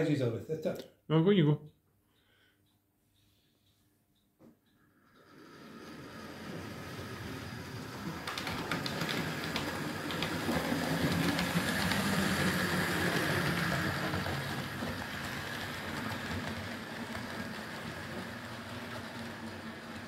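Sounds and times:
model train electric motor hum: 5.0s - 20.0s
wheels rumbling on rails: 5.1s - 20.0s.

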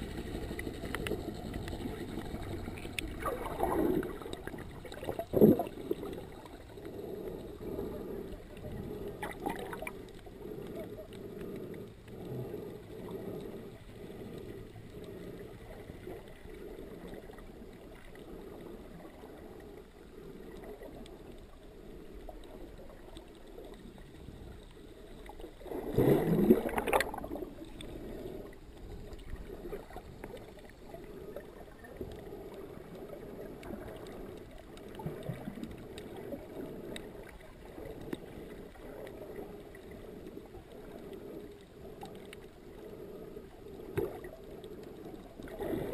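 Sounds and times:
air bubbles rising: 0.0s - 6.6s, 25.6s - 27.7s
muffled underwater ambient noise: 0.0s - 45.9s.

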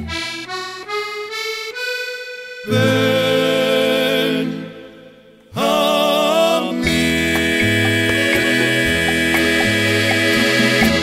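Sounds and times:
accordion-led band playing: 0.0s - 11.0s.

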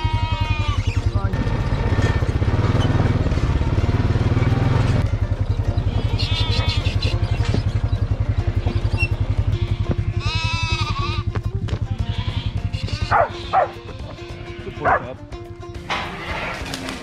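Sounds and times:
sheep bleating: 0.0s - 1.1s, 5.8s - 7.2s, 8.3s - 15.2s
low fast throbbing: 1.0s - 12.8s
background music: 1.0s - 17.0s
dog barking: 13.1s - 13.8s, 14.8s - 15.1s.

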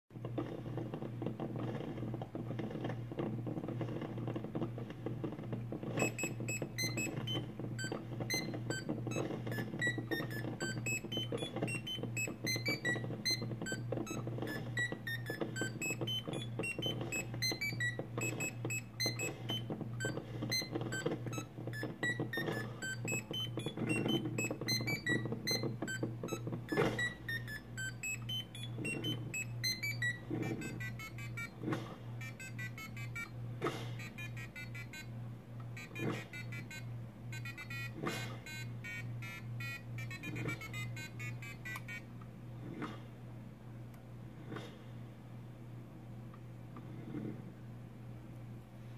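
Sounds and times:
electronic buzzer beeping tune: 6.0s - 31.6s, 32.2s - 33.4s, 34.0s - 35.1s, 35.8s - 42.1s.

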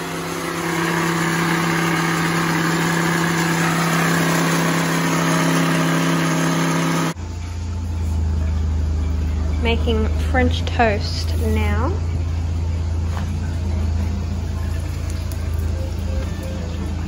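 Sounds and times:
blender motor whirring: 0.0s - 7.2s
low steady hum: 7.1s - 17.0s.

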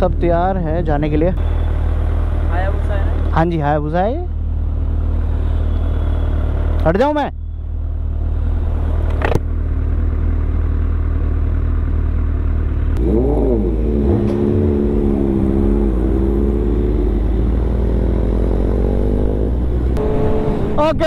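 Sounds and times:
motorcycle engines rumbling: 0.0s - 21.0s
motorcycle engine revving: 7.8s - 21.0s.

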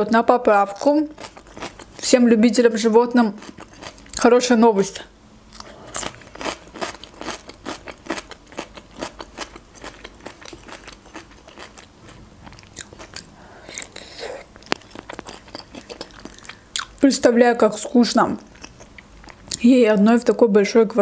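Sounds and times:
chewing crisp cucumber: 0.8s - 2.0s, 3.4s - 4.2s, 5.5s - 17.0s, 18.4s - 19.6s.

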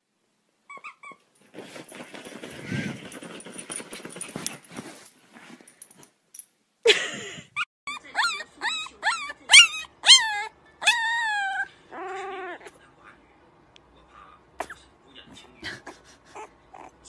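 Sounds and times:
puppy whining and yipping: 0.7s - 1.3s, 7.6s - 12.7s, 16.4s - 17.0s.

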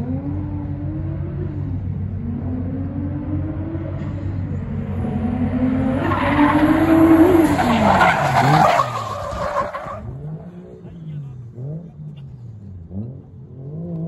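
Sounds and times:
car engine passing: 0.0s - 14.0s
tyres screeching: 5.7s - 10.0s.

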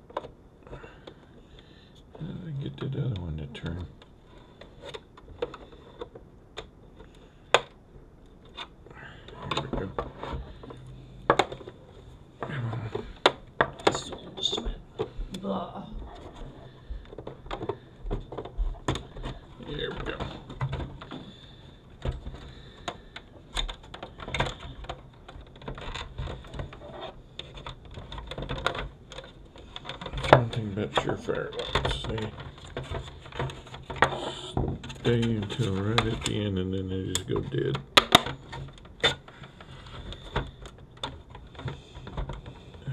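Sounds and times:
plastic housing clicks and knocks: 9.3s - 11.8s, 37.1s - 42.8s.

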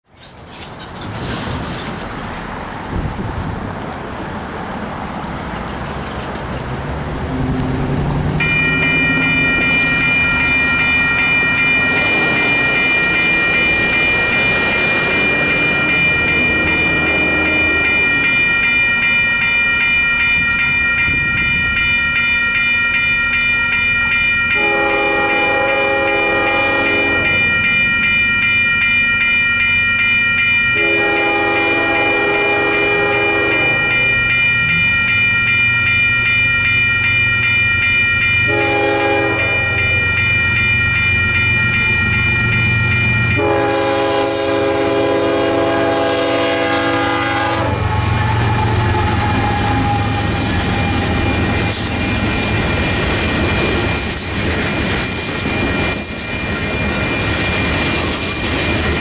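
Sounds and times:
railroad crossing bells ringing: 4.2s - 59.0s
train horn chord: 16.9s - 18.0s, 24.6s - 27.4s, 30.8s - 34.1s, 38.5s - 40.1s, 43.3s - 51.2s.

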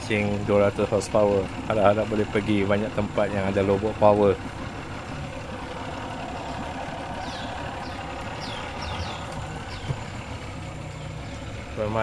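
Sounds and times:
outboard motor running: 0.0s - 12.0s
bird whistling calls: 7.1s - 10.0s.

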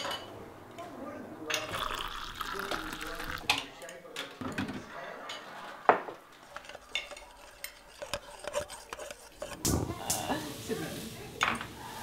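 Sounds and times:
cutlery and dishes clattering: 3.5s - 10.2s
spoon stirring and clinking: 6.4s - 9.7s.

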